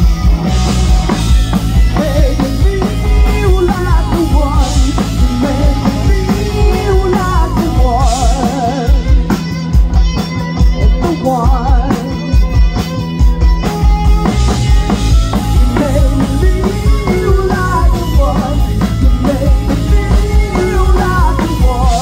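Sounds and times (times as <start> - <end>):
rock band playing: 0.0 - 22.0
woman singing: 15.6 - 22.0.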